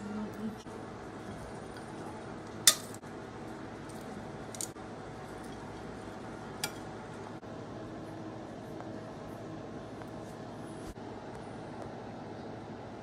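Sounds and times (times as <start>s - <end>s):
metal tongs clicking on plate: 2.7s - 3.0s.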